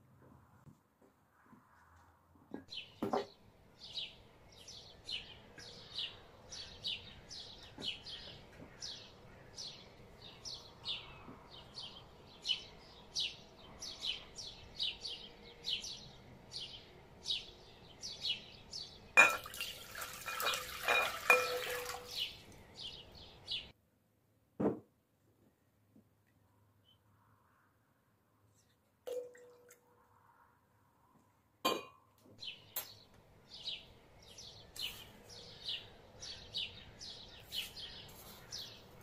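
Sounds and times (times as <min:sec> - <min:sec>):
water pouring into glass bowl: 0:19.2 - 0:22.2
small bird chirping: 0:33.6 - 0:39.0.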